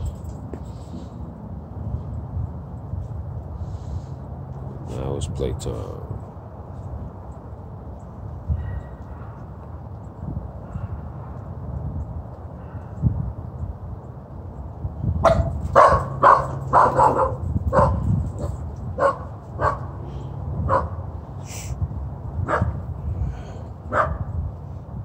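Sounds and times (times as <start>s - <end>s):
small dog barking: 15.2s - 19.9s, 20.7s - 21.0s, 22.4s - 22.8s, 23.9s - 24.3s.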